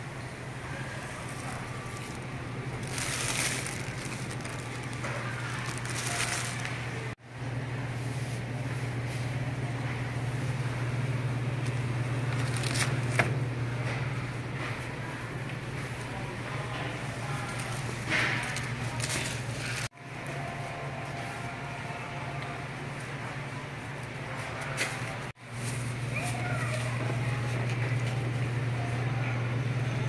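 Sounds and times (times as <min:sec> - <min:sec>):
rustling and handling noises: 0:00.8 - 0:07.2, 0:11.7 - 0:13.3, 0:17.1 - 0:21.5, 0:24.4 - 0:28.3.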